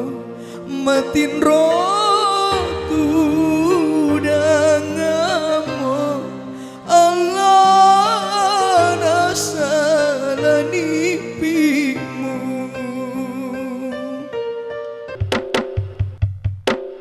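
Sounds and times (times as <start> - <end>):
person singing with vibrato: 0.0 - 14.6.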